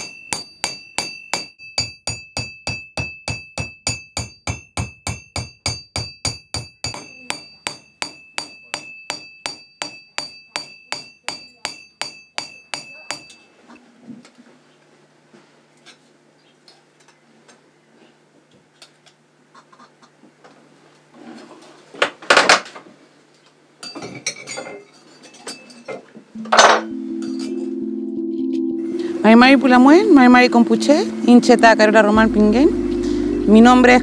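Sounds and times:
hammer ringing on metal: 0.0 - 13.4.

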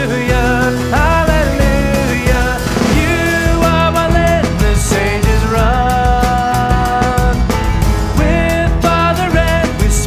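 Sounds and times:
voices singing: 0.0 - 7.2
band playing worship song: 0.0 - 10.0
steady drum beat: 0.0 - 10.0.

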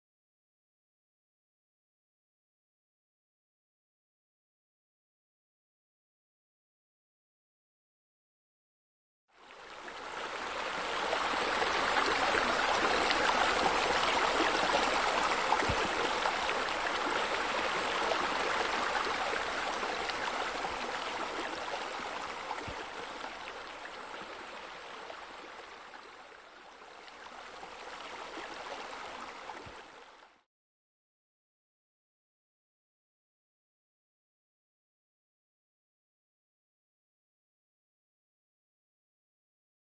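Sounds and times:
running water rushing: 9.5 - 30.3.

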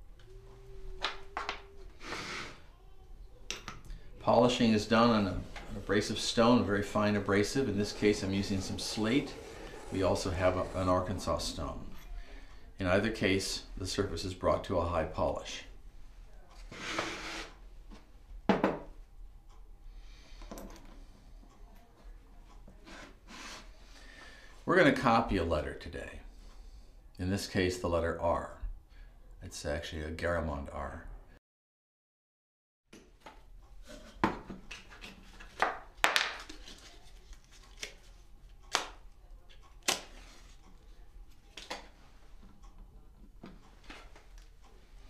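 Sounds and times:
objects knocking on wooden bench: 18.5 - 18.9.

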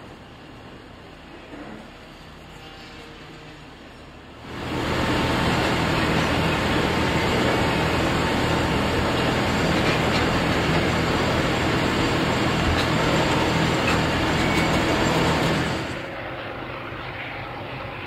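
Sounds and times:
wagon wheels rolling on rails: 4.5 - 16.0.

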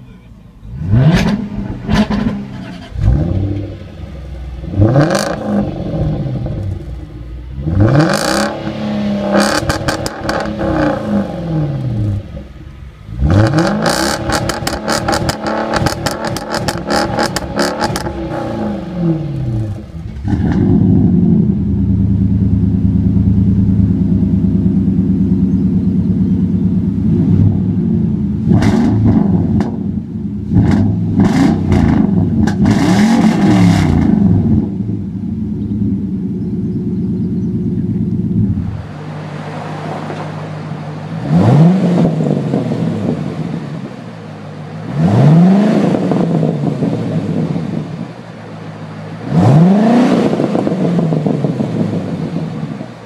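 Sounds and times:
car exhaust revving and crackling: 0.0 - 53.0
pickup exhaust deep rumble: 0.0 - 53.0.

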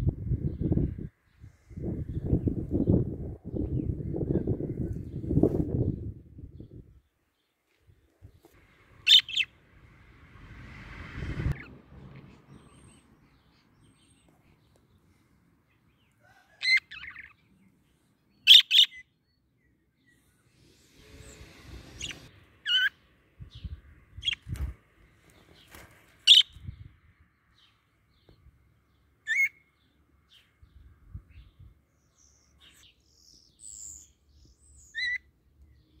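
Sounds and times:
budgerigars chirping: 9.1 - 9.5, 18.4 - 19.0, 29.3 - 29.6, 34.8 - 35.2.

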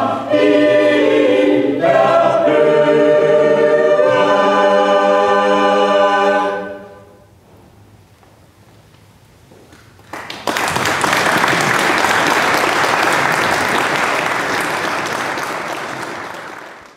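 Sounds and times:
audience applause: 10.0 - 16.9.

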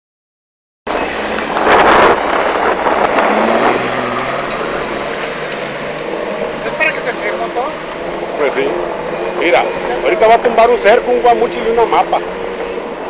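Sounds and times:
car engine under load: 0.9 - 13.0
water splashing against car: 1.1 - 13.0.

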